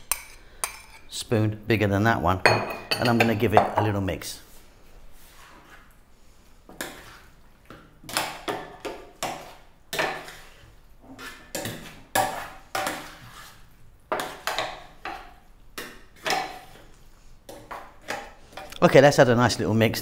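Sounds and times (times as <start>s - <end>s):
spoon scraping metal dish: 9.2s - 15.3s.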